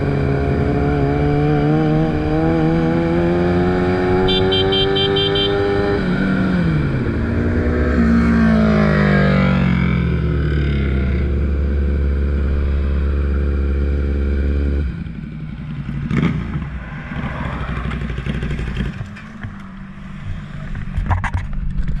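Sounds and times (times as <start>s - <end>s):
motorcycle engine running: 4.1s - 6.2s
uneven engine rumble: 6.7s - 22.0s.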